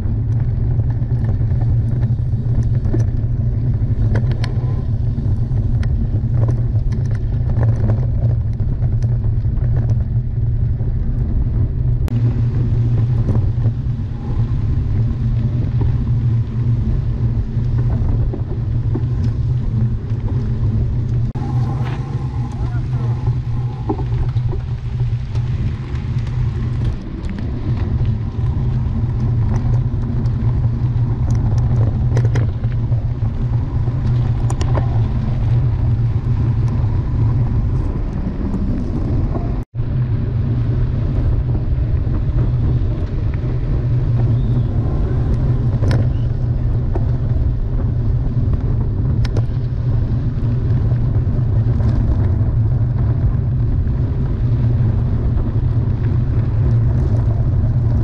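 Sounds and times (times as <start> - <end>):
loud low rumble: 0.0 - 58.0.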